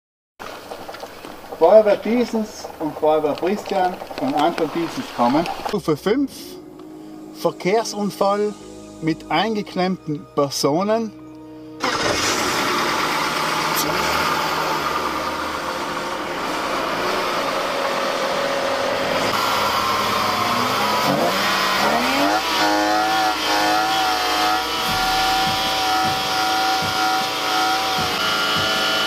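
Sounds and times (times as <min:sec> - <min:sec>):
car engine revving: 0:11.8 - 0:29.0.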